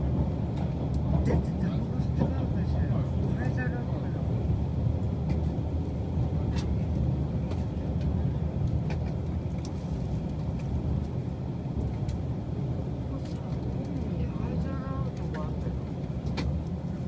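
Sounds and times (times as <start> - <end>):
moving train rumble: 0.0 - 17.0.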